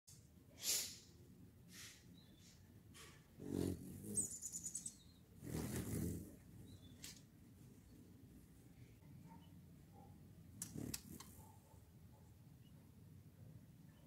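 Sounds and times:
hummingbird chittering call: 0:03.4 - 0:07.0
short high bird chirps: 0:04.2 - 0:05.2.

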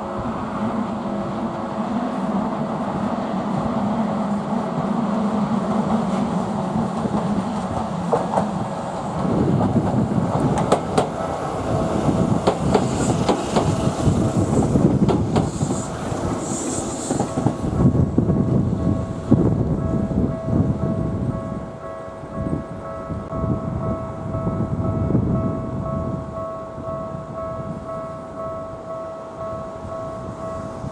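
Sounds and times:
electric train hum: 0:00.0 - 0:30.9
wheels clicking over rail joints: 0:06.9 - 0:16.4
level-crossing warning bell: 0:17.7 - 0:30.9.

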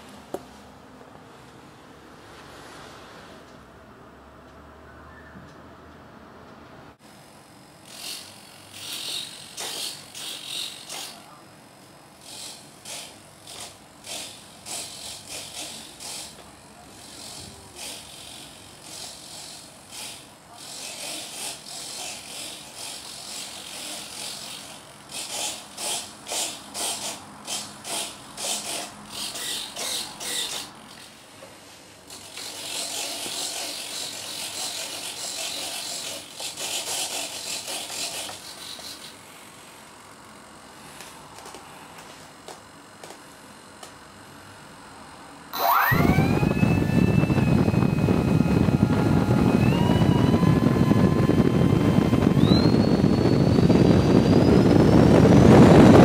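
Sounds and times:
servos whirring: 0:07.9 - 0:11.2, 0:45.6 - 0:55.3.

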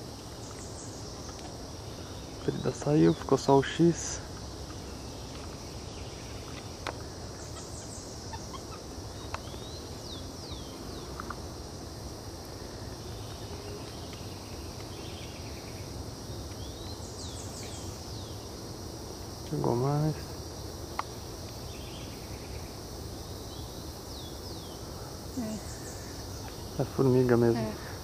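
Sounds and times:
high insect drone: 0:00.0 - 0:28.0.

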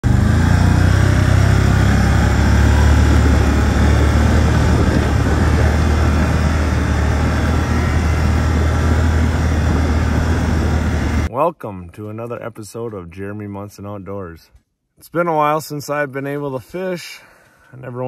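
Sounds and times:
vehicle engine droning: 0:00.0 - 0:11.3.

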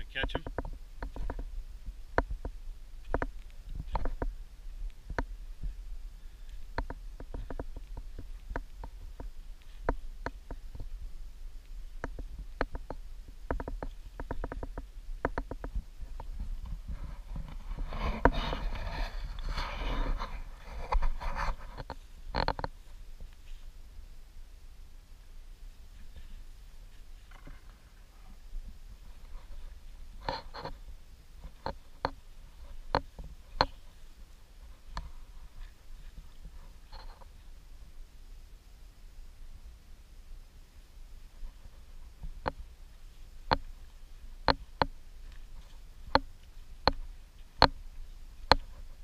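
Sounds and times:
microphone handling noise: 0:00.0 - 0:23.7
wind rumble on microphone: 0:00.0 - 0:24.4
sharp irregular clicks: 0:06.5 - 0:10.9, 0:12.0 - 0:16.3.

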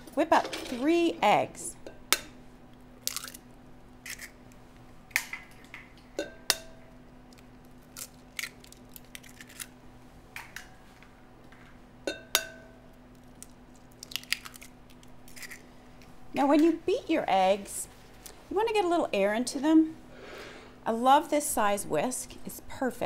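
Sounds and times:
eggshells cracking on glass bowl: 0:03.0 - 0:04.4, 0:07.3 - 0:09.7, 0:13.2 - 0:15.7
glass bowl ringing: 0:12.1 - 0:12.8.

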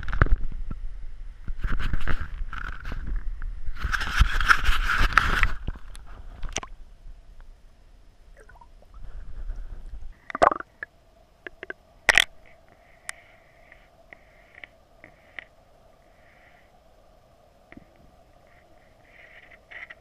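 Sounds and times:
faint underwater noise: 0:05.4 - 0:20.0.

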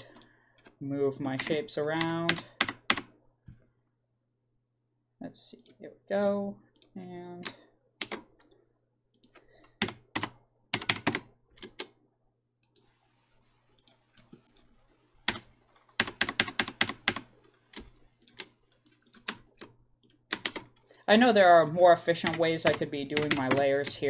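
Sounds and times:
computer keyboard typing: 0:01.4 - 0:03.1, 0:06.2 - 0:08.3, 0:09.2 - 0:12.0, 0:13.8 - 0:20.8, 0:22.2 - 0:24.0.

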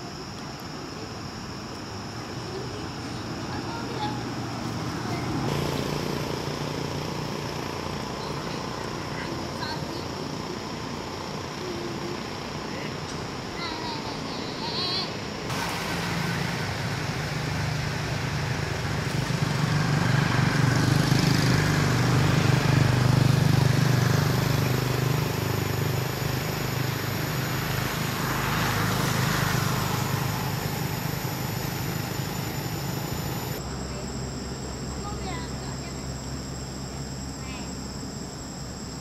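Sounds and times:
vehicle engine passing: 0:15.5 - 0:33.6.

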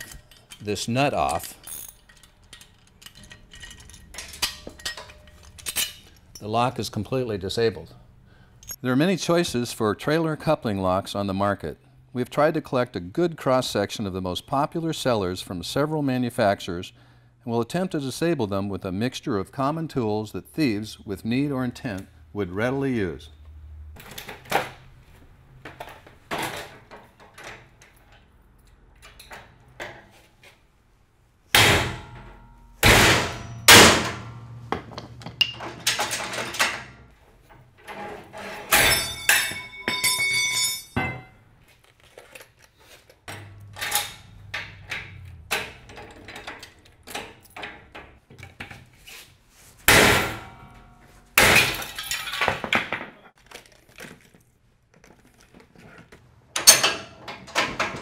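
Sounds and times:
metal tools knocking and clanking: 0:00.0 - 0:06.6, 0:34.7 - 0:36.9, 0:37.5 - 0:41.4, 0:43.3 - 0:48.8, 0:56.6 - 0:58.0
ringing metallic clink: 0:38.8 - 0:41.3.

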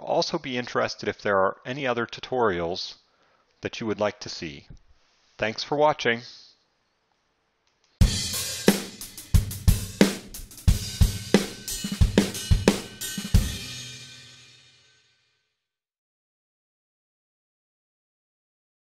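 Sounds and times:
drum kit sting: 0:08.0 - 0:15.0
cymbal crash ringing: 0:08.0 - 0:15.1.

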